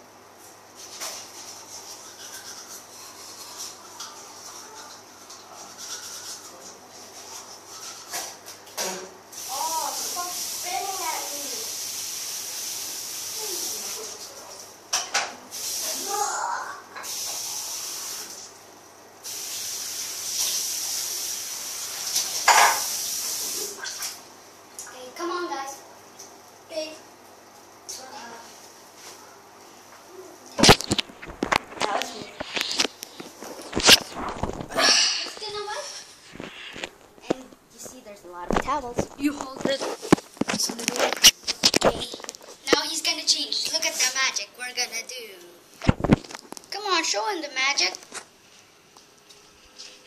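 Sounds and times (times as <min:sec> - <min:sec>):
toothbrush scrubbing teeth: 0:00.8 - 0:08.6, 0:30.6 - 0:36.9, 0:38.6 - 0:44.1
tap water running into sink: 0:19.3 - 0:24.2.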